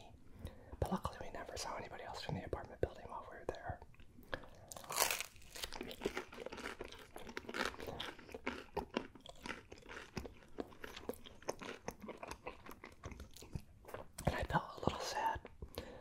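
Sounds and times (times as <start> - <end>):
chewing pizza: 3.9 - 16.0.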